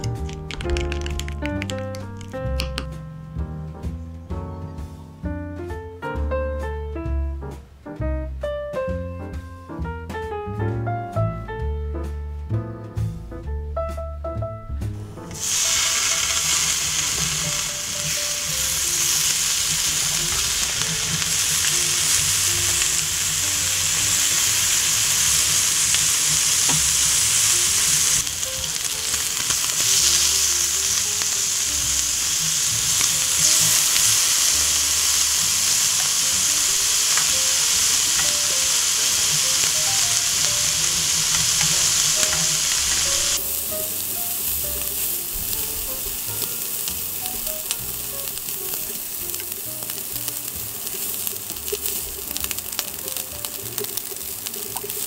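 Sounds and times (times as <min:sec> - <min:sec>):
meat sizzling in a pan: 0:15.4 - 0:55.0.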